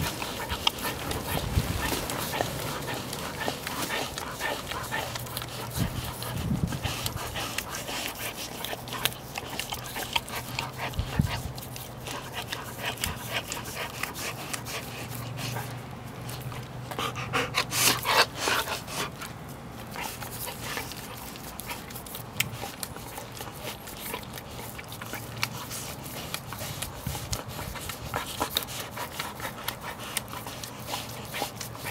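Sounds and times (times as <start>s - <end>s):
dog licking wet tongue smacks: 0.0s - 31.9s.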